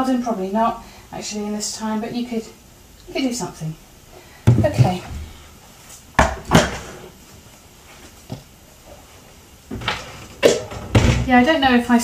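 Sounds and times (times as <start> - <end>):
sharp knocks: 4.5 - 5.3.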